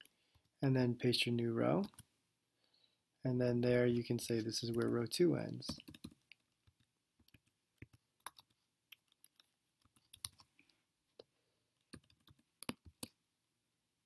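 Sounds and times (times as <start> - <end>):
soft keyboard typing: 1.6 - 2.1, 4.0 - 10.6, 11.2 - 13.2.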